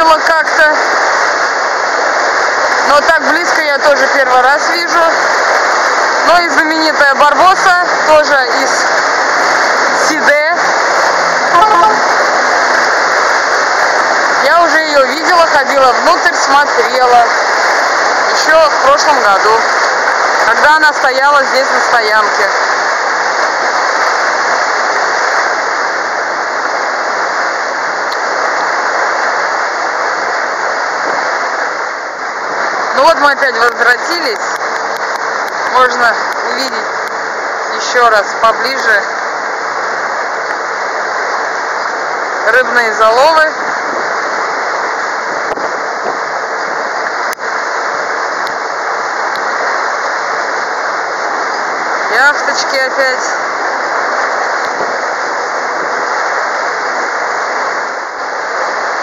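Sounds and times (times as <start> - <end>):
water rushing along boat hull: 0.0 - 59.0
air rushing past boat: 7.6 - 14.5.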